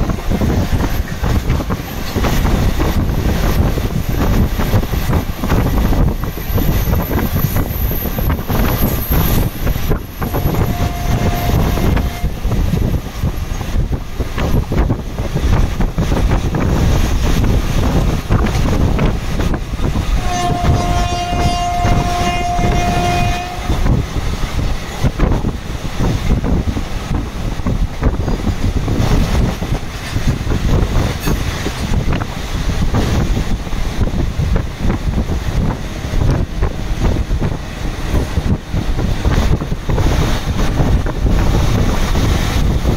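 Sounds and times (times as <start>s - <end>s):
train rumbling on rails: 0.0s - 42.9s
wind buffeting microphone: 0.0s - 42.9s
train horn: 10.2s - 12.6s, 20.2s - 24.0s.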